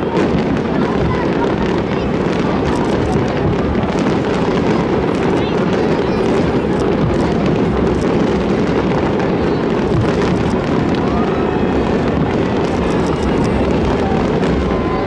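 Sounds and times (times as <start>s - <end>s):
fireworks bangs rumbling: 0.0s - 15.0s
fireworks crackling: 0.0s - 15.0s.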